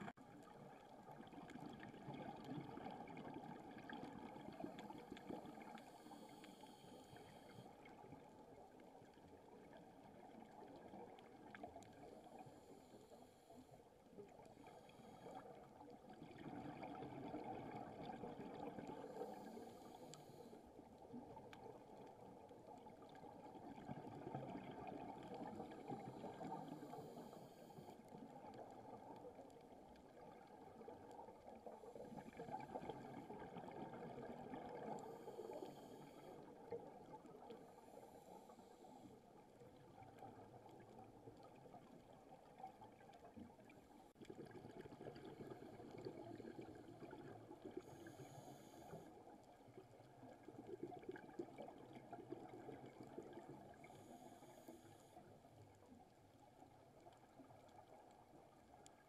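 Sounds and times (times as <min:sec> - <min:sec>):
bubbles rising underwater: 0:15.4 - 0:19.5, 0:21.2 - 0:27.2, 0:28.1 - 0:37.5, 0:39.8 - 0:48.0
diver breathing through regulator: 0:47.8 - 0:49.1.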